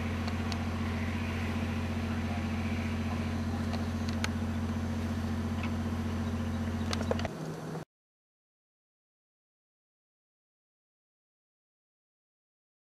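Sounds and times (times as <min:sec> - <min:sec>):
engine humming: 0:00.0 - 0:07.9
faint clicks: 0:03.6 - 0:04.4.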